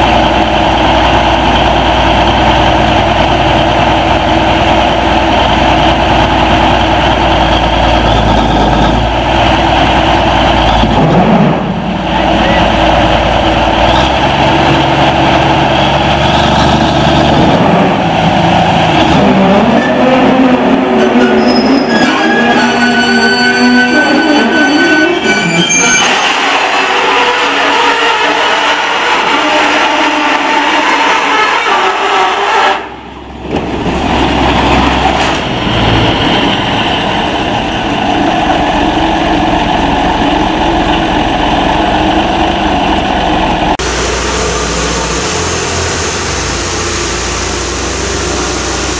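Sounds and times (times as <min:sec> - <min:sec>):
diesel engine running under load: 0:00.0 - 0:21.0, 0:32.9 - 0:48.9.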